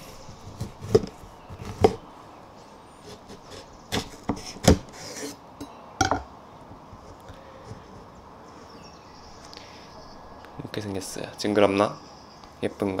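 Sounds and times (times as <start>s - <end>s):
knife cutting fruit on wooden board: 0.4s - 2.0s, 3.0s - 5.4s.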